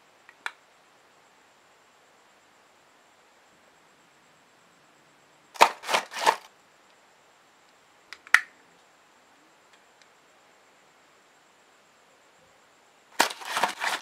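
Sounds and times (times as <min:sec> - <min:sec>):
plastic parts rustling: 0:05.6 - 0:06.5, 0:13.2 - 0:14.0
plastic parts snapping together: 0:05.6 - 0:06.5.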